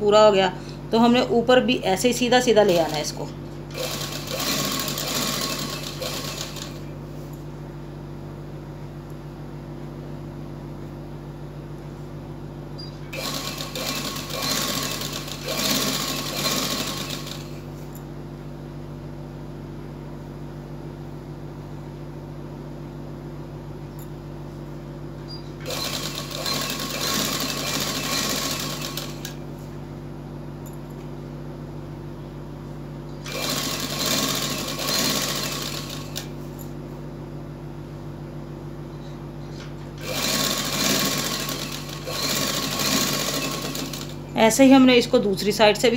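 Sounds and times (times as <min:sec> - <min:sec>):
steady low hum: 0:00.0 - 0:45.9
sewing machine stitching: 0:02.7 - 0:06.9, 0:13.1 - 0:17.6, 0:25.6 - 0:29.4, 0:33.2 - 0:36.3, 0:40.0 - 0:44.2.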